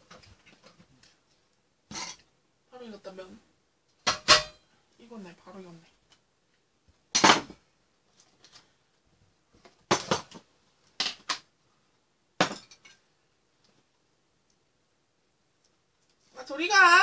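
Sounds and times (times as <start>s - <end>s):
bowls and containers clattering: 1.9s - 2.3s.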